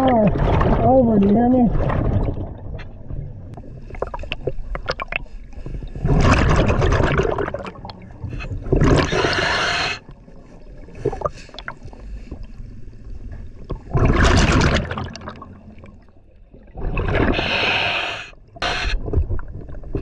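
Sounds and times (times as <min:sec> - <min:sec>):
bubbling: 0:00.0 - 0:20.0
diver breathing through regulator: 0:08.3 - 0:10.1, 0:17.2 - 0:19.1.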